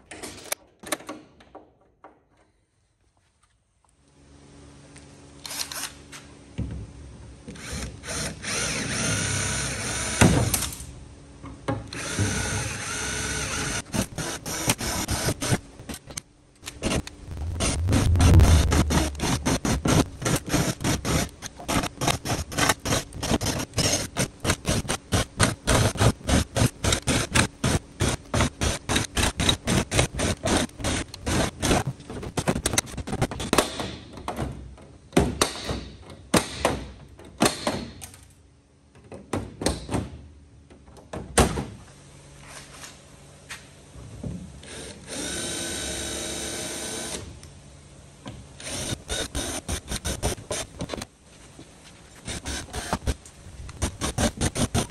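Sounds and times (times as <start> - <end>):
power drill drilling rivets: 5.4 - 5.9, 48.6 - 51.0, 52.2 - 53.2.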